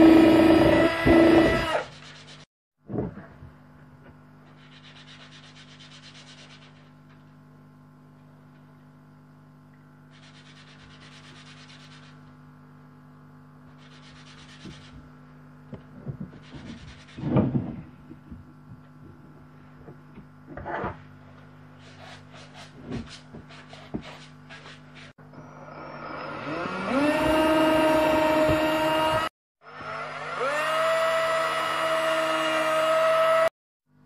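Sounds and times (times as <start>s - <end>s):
hand-sanding wood: 1.9s - 2.5s, 4.5s - 7.1s, 10.2s - 12.3s, 13.7s - 15.1s, 16.3s - 17.4s, 21.7s - 25.2s.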